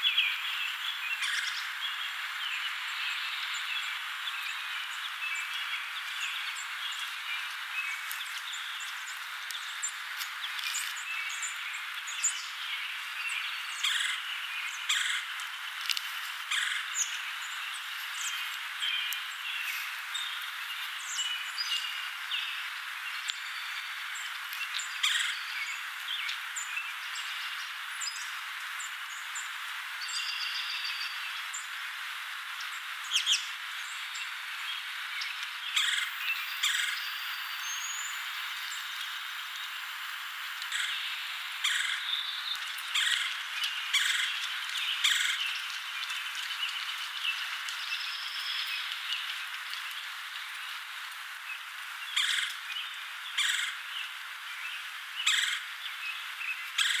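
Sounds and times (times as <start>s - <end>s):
outdoor hiss: 0.0s - 57.0s
woodpecker calls: 0.3s - 1.8s, 13.5s - 28.2s, 35.2s - 49.7s, 52.1s - 52.7s, 53.3s - 53.9s, 55.2s - 55.8s, 56.7s - 57.0s.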